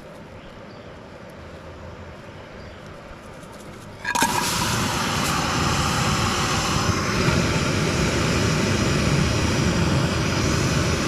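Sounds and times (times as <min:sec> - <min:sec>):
gas burner hissing: 0:04.0 - 0:11.0.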